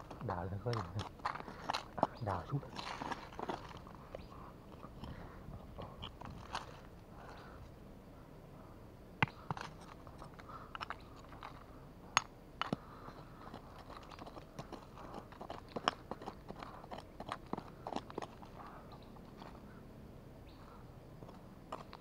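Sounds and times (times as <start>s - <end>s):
metal tool scraping stony soil: 0.0s - 5.0s
tool clicking on pebbles: 0.0s - 6.9s, 9.2s - 19.6s, 21.2s - 22.0s.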